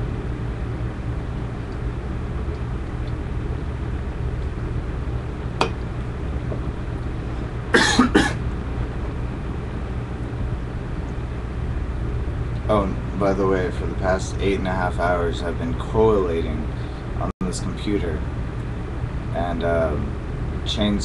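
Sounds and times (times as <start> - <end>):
steady low hum: 0.0 - 21.0
man coughing: 7.7 - 8.4.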